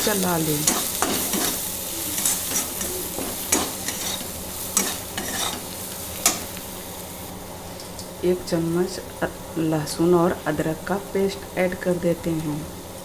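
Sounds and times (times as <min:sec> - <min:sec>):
masala sizzling in oil: 0:00.0 - 0:13.0
metal spatula scraping pan: 0:00.6 - 0:06.5.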